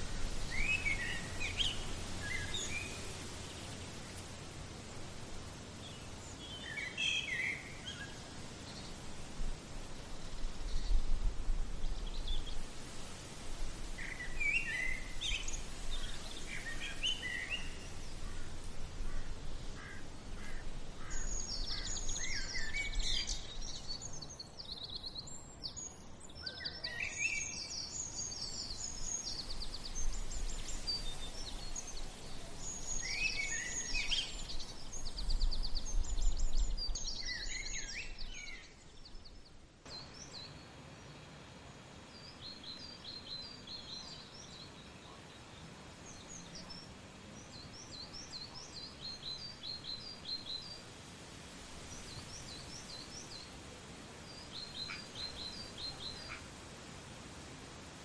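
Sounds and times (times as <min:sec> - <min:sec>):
songbirds chirping and trilling: 0:00.0 - 0:58.0.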